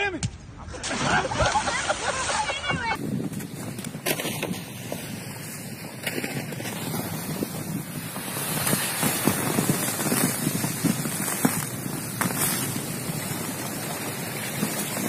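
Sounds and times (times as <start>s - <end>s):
wind buffeting microphone: 0.7s - 15.0s
plastic sled scraping on snow: 1.2s - 15.0s
footsteps crunching on snow: 3.0s - 15.0s.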